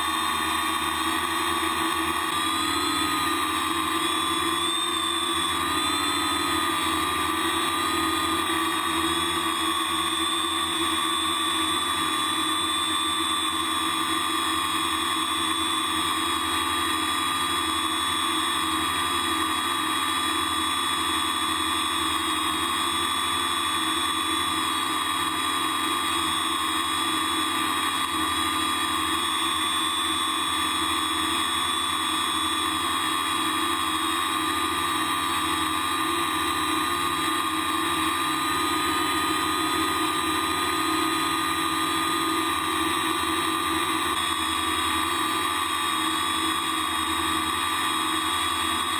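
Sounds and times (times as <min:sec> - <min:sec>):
drone propellers whining: 0:00.0 - 0:18.6.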